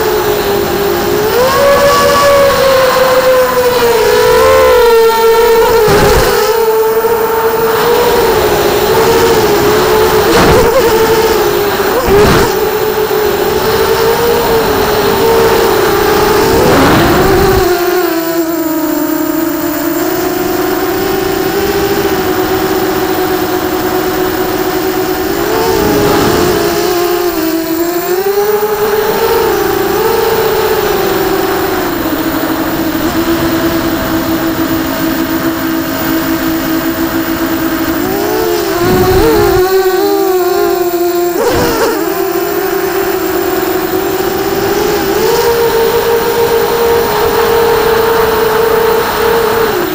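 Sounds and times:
quadcopter motors whining: 0:00.0 - 0:49.9
rushing wind noise: 0:38.7 - 0:39.7.

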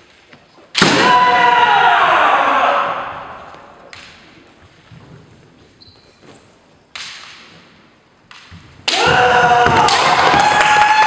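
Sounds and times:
loud shout: 0:00.9 - 0:03.7, 0:08.9 - 0:11.0
sharp knocks ringing in hall: 0:07.0 - 0:11.0.

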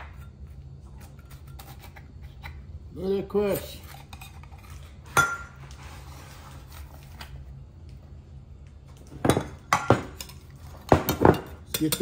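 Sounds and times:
metal utensil clinking on dish: 0:11.2 - 0:12.0.

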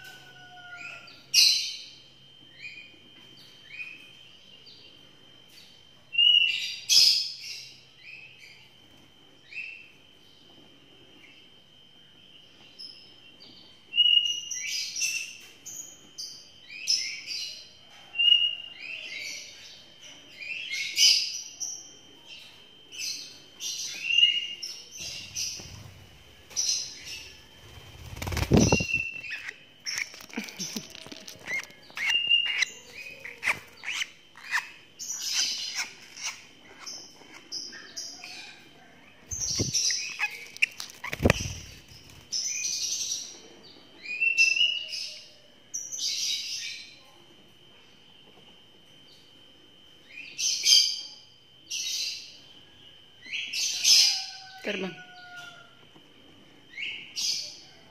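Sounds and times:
lovebirds chirping: 0:23.0 - 0:43.4.

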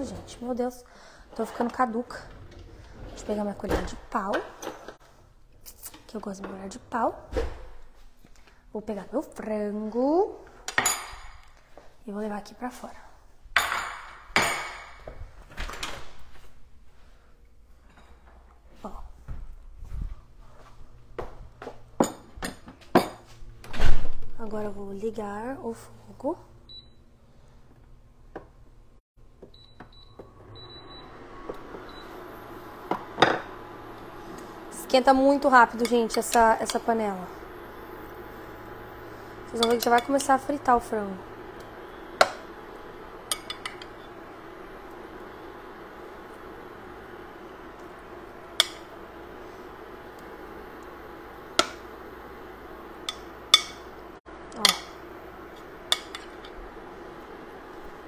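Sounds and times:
cooling fan whirring: 0:23.5 - 0:58.0
spoon clinking against glass and pot: 0:53.0 - 0:53.9.

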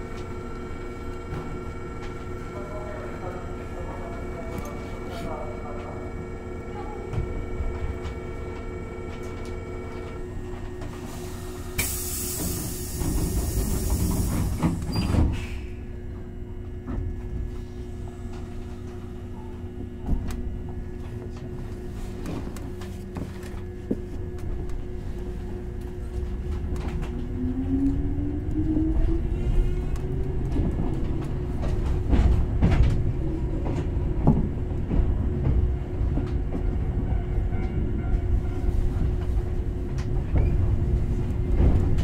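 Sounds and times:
train equipment humming: 0:00.0 - 0:42.0
compressed air hiss: 0:11.3 - 0:14.3.

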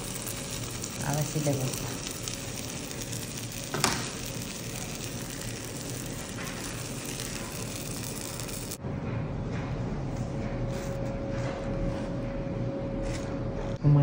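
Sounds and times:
batter sizzling in frying pan: 0:00.0 - 0:08.8.

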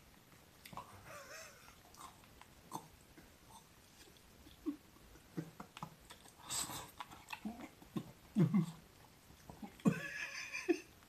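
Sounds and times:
man laughing while eating: 0:01.0 - 0:01.8, 0:09.8 - 0:11.0.

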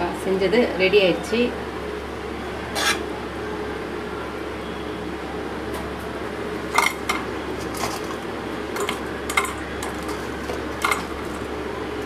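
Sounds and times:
low background hum: 0:00.0 - 0:12.0
metal containers clinking: 0:06.7 - 0:11.6.

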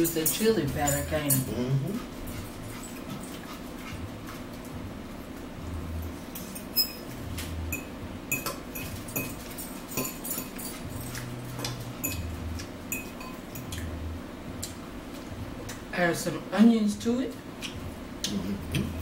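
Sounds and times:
chewing: 0:01.9 - 0:04.7.

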